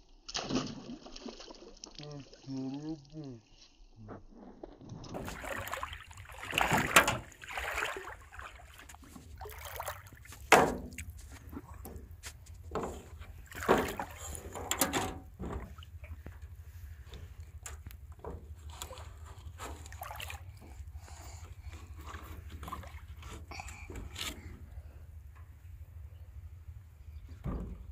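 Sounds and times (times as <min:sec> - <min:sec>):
water sloshing: 0:05.0 - 0:25.6
low steady rumble: 0:05.3 - 0:27.9
knocks against metal boat hull: 0:10.5 - 0:11.0.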